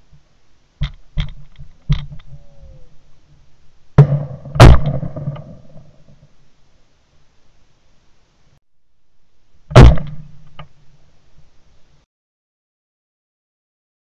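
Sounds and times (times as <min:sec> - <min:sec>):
shotgun shots: 0:04.0 - 0:05.8, 0:09.8 - 0:10.3.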